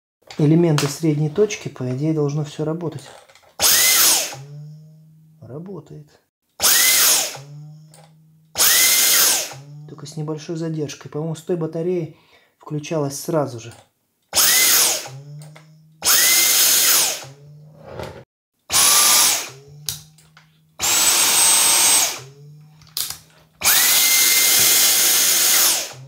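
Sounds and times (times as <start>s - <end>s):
vacuum motor whine: 6.6s - 10.0s, 14.4s - 17.7s, 18.7s - 26.0s.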